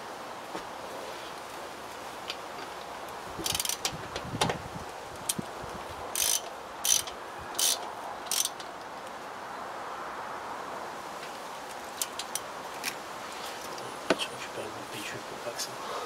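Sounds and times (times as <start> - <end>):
socket ratchet wrench clicking: 3.4 - 3.9, 6.2 - 8.7.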